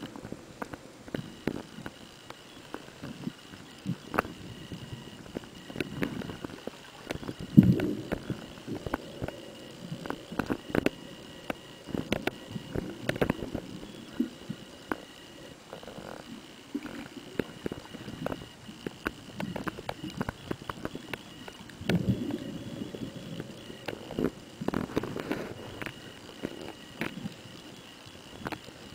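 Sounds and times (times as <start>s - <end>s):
muffled rushes of water: 0.0s - 15.8s
sharp underwater clicks: 0.0s - 28.9s
faint steady high tone: 1.1s - 28.9s.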